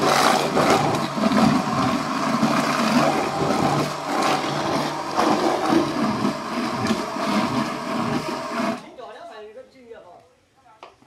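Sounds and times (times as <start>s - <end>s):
bowl chopper motor grinding meat: 0.0s - 8.8s.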